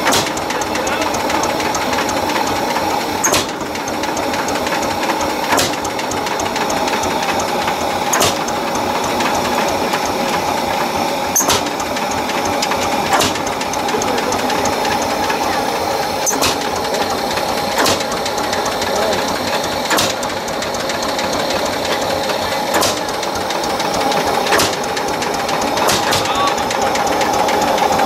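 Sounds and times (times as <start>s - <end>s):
tractor engine running: 0.0s - 28.0s
sharp click: 3.2s - 3.6s, 5.5s - 5.9s, 8.1s - 8.6s, 11.4s - 11.8s, 16.2s - 16.7s, 17.8s - 18.2s, 19.9s - 20.3s, 22.7s - 23.1s, 24.5s - 24.8s, 25.8s - 26.5s.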